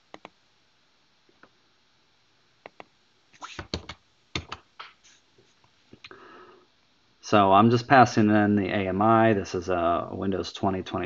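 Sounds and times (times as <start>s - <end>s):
keyboard keys clicking: 3.6s - 4.6s.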